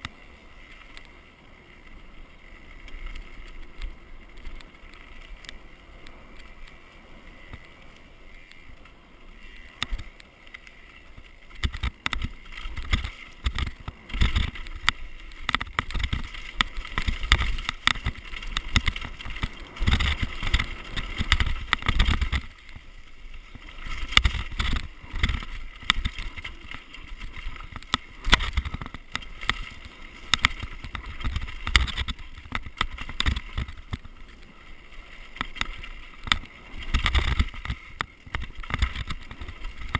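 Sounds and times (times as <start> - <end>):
bike knocking and rattling: 0.0 - 39.9
bike tyres rushing over dirt: 0.0 - 39.9.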